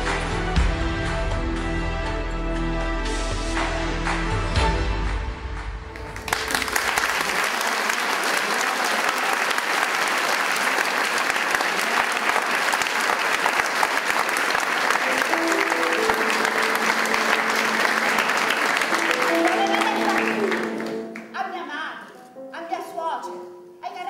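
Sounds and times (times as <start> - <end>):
audience applauding: 5.8 - 21.3
held musical notes: 14.6 - 21.4.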